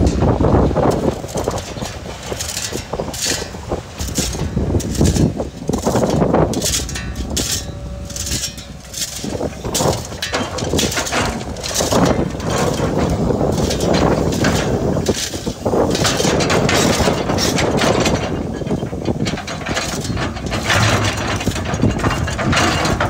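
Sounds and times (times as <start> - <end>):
bucket scraping stones: 0.0 - 18.2
excavator diesel engine running: 0.0 - 23.0
rocks clattering into truck bed: 0.0 - 23.0.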